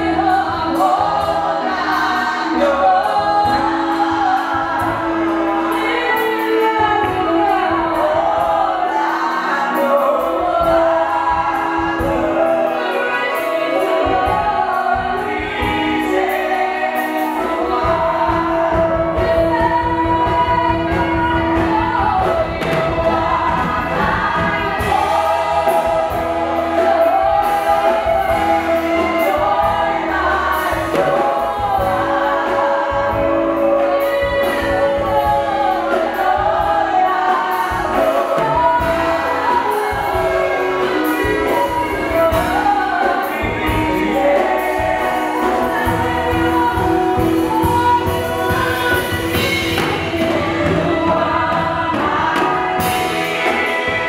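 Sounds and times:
congregation singing worship song: 0:00.0 - 0:54.0
live band playing: 0:00.0 - 0:54.0.

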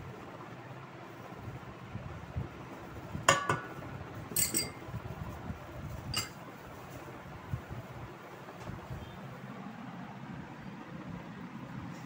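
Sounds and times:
small bowl clinking on steel bowl: 0:03.3 - 0:03.7, 0:04.3 - 0:04.8, 0:06.1 - 0:06.4.

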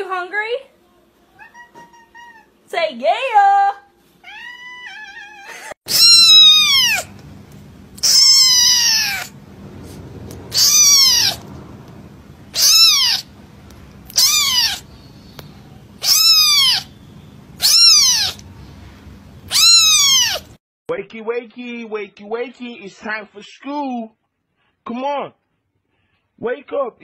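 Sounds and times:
kitten mewing: 0:04.2 - 0:07.2, 0:07.9 - 0:13.4, 0:14.0 - 0:14.9, 0:16.0 - 0:17.0, 0:17.6 - 0:18.5, 0:19.4 - 0:20.6.

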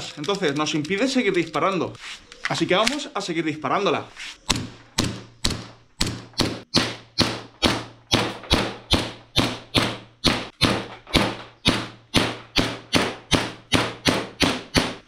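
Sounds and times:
airsoft pistol shots: 0:04.5 - 0:15.0.

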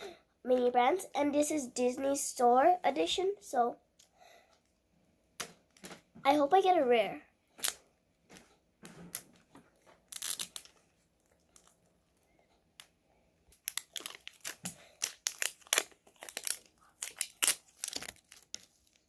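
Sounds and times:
plastic wrapping crinkling: 0:09.1 - 0:12.0, 0:13.5 - 0:19.0
plastic tearing: 0:10.0 - 0:10.8, 0:13.5 - 0:19.0.

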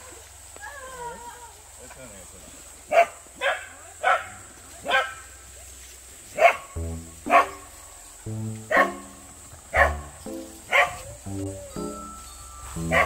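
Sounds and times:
dog barking: 0:02.9 - 0:05.2, 0:06.4 - 0:06.7, 0:07.3 - 0:07.6, 0:10.7 - 0:11.0
background music: 0:06.8 - 0:13.0.

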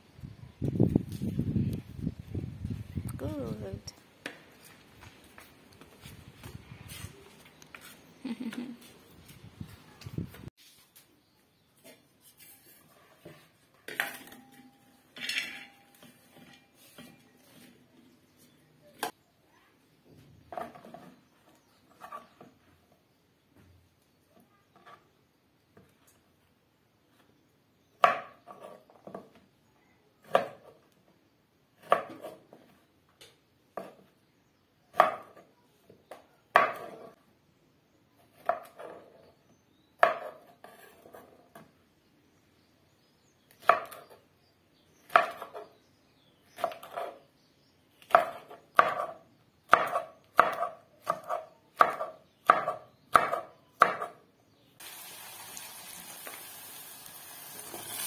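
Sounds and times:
knife chopping on wooden board: 0:34.9 - 0:35.4, 0:45.1 - 0:45.6, 0:48.1 - 0:54.2
onions sizzling in a pot: 0:54.8 - 0:58.0.

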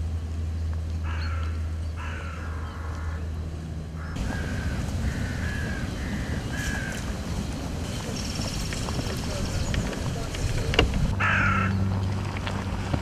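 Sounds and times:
rough low rumble: 0:00.0 - 0:13.0
steady low hum: 0:00.0 - 0:13.0
crows cawing: 0:01.0 - 0:03.3, 0:04.0 - 0:09.1, 0:11.2 - 0:11.8.

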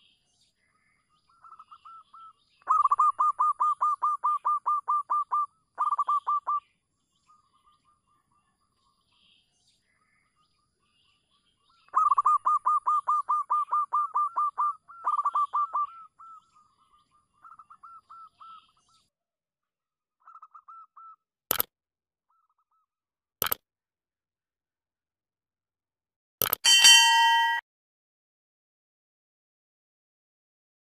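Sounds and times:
dove cooing: 0:02.7 - 0:06.6, 0:12.0 - 0:16.4
sharp clicks: 0:21.5 - 0:21.7, 0:26.4 - 0:26.6.

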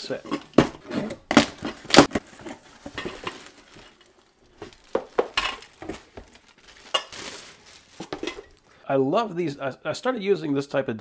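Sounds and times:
plastic wrapping rustling: 0:00.0 - 0:08.8.

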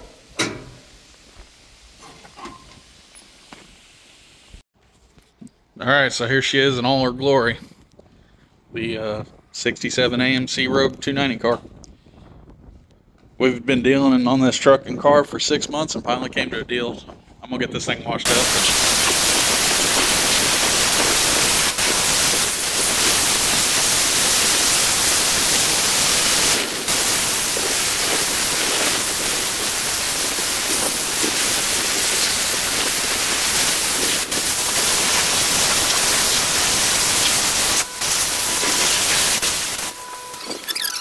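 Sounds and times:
pressure washer spraying water: 0:18.3 - 0:40.0.

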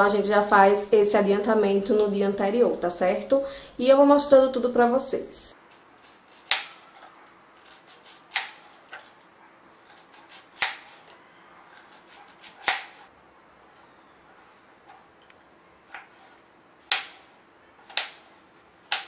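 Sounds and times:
knife cutting onion: 0:05.8 - 0:09.2, 0:09.8 - 0:11.1, 0:11.7 - 0:13.1, 0:15.8 - 0:19.0.

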